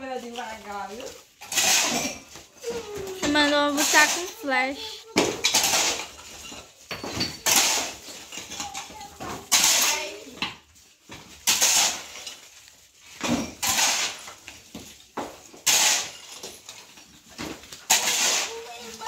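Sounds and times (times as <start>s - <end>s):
digging tool striking brick rubble: 9.4s - 10.5s, 11.4s - 12.2s, 13.2s - 14.4s, 15.2s - 16.5s, 17.4s - 18.7s.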